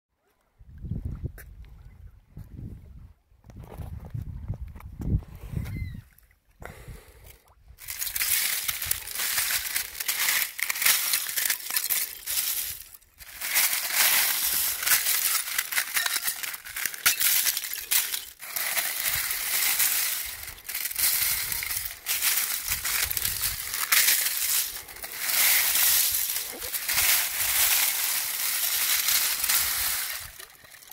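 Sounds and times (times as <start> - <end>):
ice crystals tinkling and crunching: 7.8 - 30.9.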